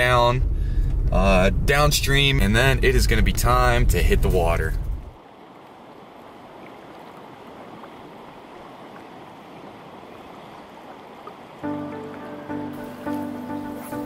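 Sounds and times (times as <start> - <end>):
river flowing: 5.1 - 14.0
music: 11.6 - 14.0.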